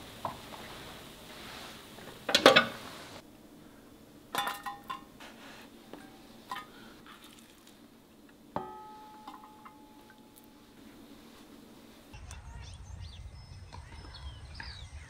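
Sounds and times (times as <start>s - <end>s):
utensils clattering: 2.3s - 2.8s, 4.4s - 5.1s, 6.0s - 7.4s, 8.6s - 10.4s.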